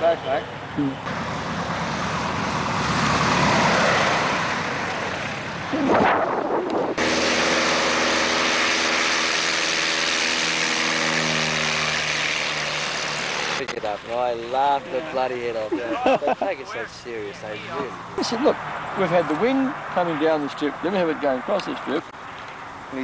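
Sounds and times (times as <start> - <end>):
propeller engine drone: 0.1 - 14.9
aircraft landing rush: 1.1 - 13.8.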